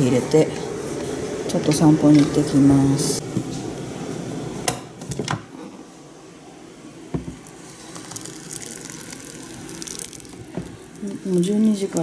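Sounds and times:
water pouring into plastic pitcher: 7.5s - 12.0s.

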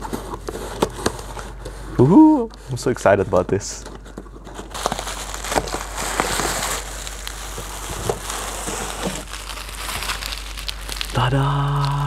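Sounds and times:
packaging crinkling: 3.8s - 12.0s.

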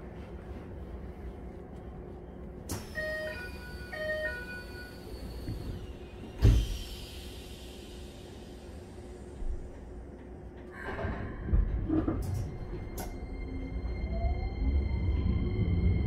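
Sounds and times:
low steady train hum: 0.0s - 16.0s
train door chime beeps: 2.8s - 5.5s.

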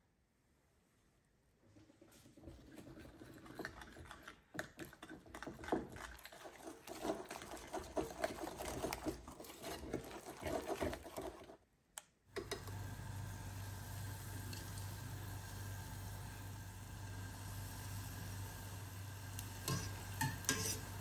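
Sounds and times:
whisk beating batter in bowl: 2.2s - 11.6s, 19.6s - 21.0s.

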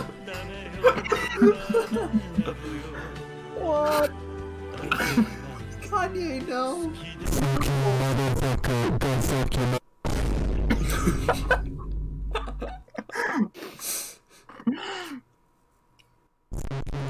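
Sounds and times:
music: 0.0s - 9.8s
distorted speech: 5.8s - 9.8s
deep bass drone: 10.1s - 12.8s.

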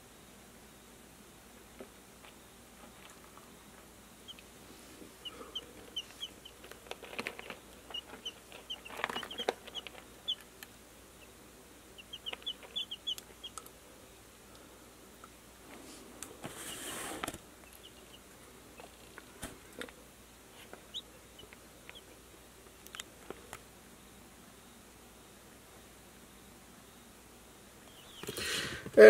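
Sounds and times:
chicks peeping: 4.2s - 13.8s, 15.8s - 20.0s, 20.6s - 23.1s, 27.8s - 28.8s.

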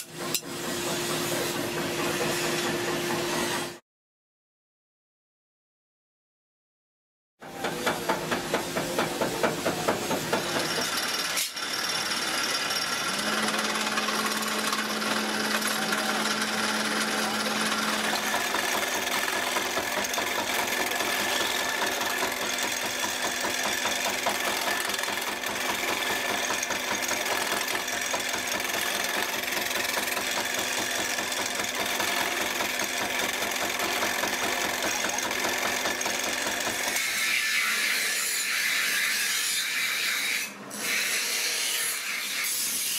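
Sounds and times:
riveting machine hammering: 0.0s - 3.8s, 7.4s - 37.1s.

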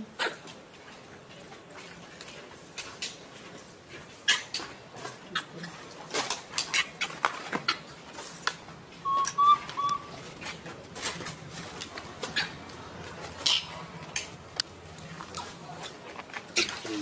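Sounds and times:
bird whistled notes: 9.0s - 10.1s
sharp clicks and chirps: 9.1s - 10.1s.

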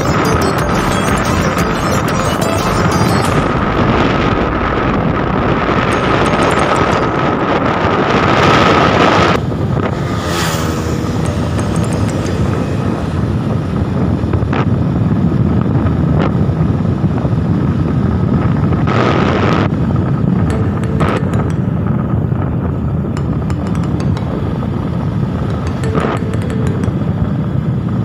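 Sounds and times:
wind and road noise: 2.8s - 28.0s.

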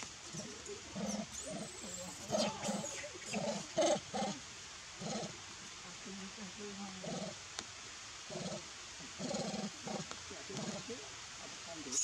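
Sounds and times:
macaques low calls: 0.2s - 5.4s, 8.3s - 11.1s.

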